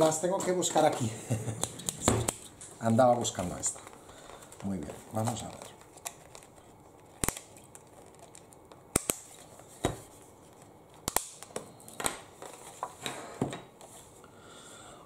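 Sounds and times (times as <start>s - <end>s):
plastic packaging rustling: 0.0s - 10.7s, 11.8s - 13.0s.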